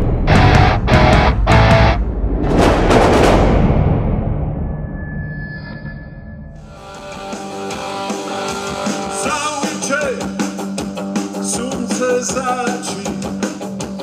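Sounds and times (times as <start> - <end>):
rock band playing: 0.0 - 2.0, 6.6 - 14.0
man singing: 9.1 - 10.5, 11.3 - 13.6.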